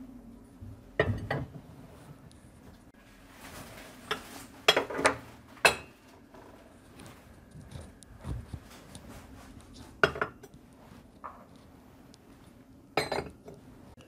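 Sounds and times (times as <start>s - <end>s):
mugs clinking: 4.0s - 6.0s, 10.0s - 10.5s, 13.0s - 13.6s.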